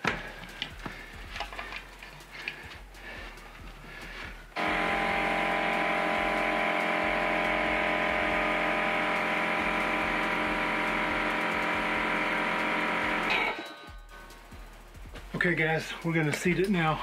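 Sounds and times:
air compressor motor hum: 0.0 - 13.5.

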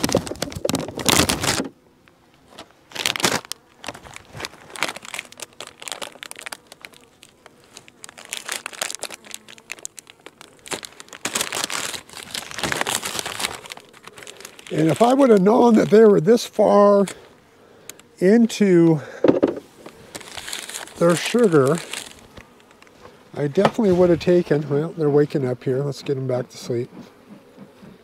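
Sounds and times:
paper backing crinkling: 0.0 - 1.7, 2.5 - 17.2, 19.8 - 24.5.

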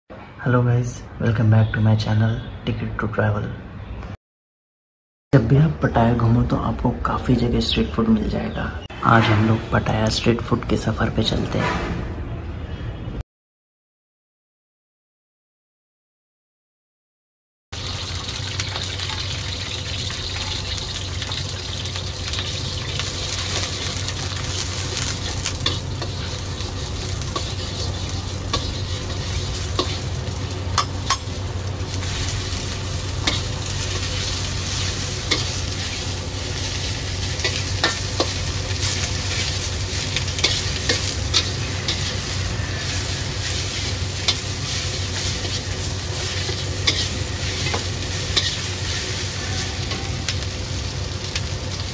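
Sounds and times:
food sizzling in a wok: 17.8 - 51.9
spatula stirring and scraping: 23.4 - 31.3, 31.9 - 50.2.

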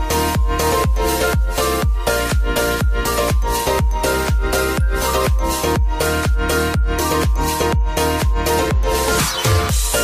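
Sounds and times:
deep kick drum: 0.0 - 9.0
electronic dance music: 0.0 - 10.0.

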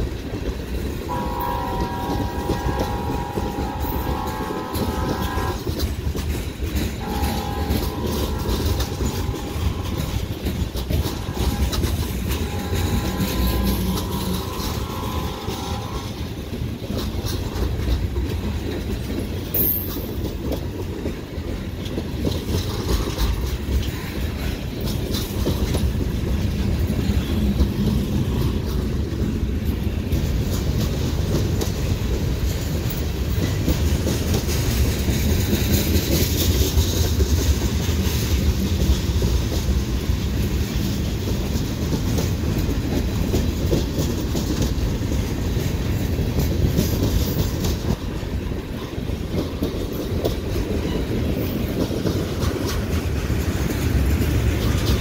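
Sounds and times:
freight cars rumbling and clattering: 0.0 - 55.0
locomotive horn blasts: 1.0 - 5.8, 6.7 - 17.6.

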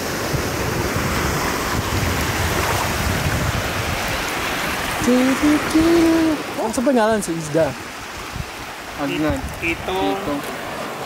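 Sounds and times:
small waves breaking around legs: 0.0 - 11.0
wind on microphone: 0.0 - 11.0
person speaking: 5.0 - 7.8, 9.0 - 10.4.

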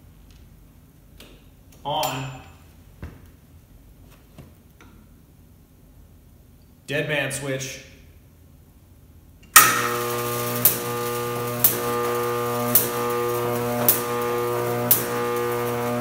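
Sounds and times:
electric arc buzzing: 9.5 - 16.0.

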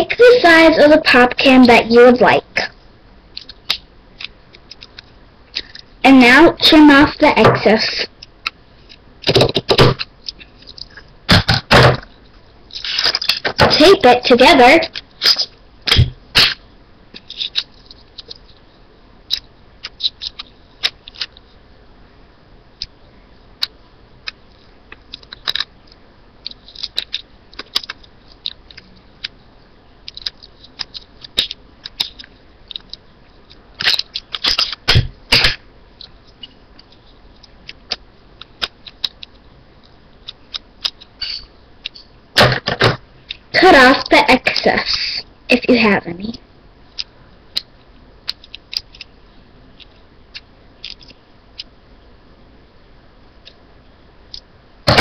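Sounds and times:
sticky tape crackling: 2.6 - 5.9, 6.6 - 21.6, 23.6 - 42.6, 46.2 - 51.8
tape tearing and crinkling: 12.7 - 13.6, 15.2 - 16.6, 33.8 - 35.6.

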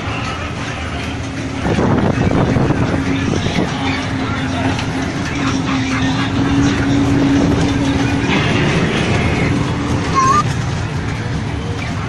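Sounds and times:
ride train rumbling on track: 0.0 - 12.0
steady humming tone: 0.0 - 12.0
rising squeak: 10.1 - 10.4.

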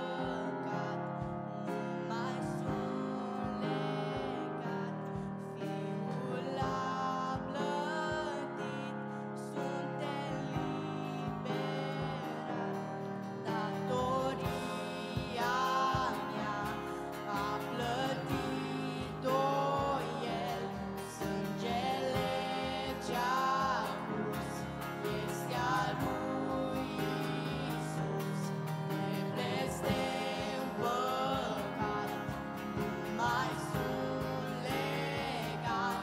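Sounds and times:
girl singing into a microphone: 0.0 - 36.0
drums and instrumental backing: 10.1 - 36.0.

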